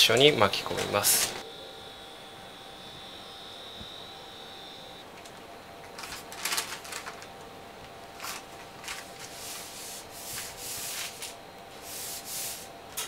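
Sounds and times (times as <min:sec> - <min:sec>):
baking parchment rustling: 0:05.9 - 0:11.4.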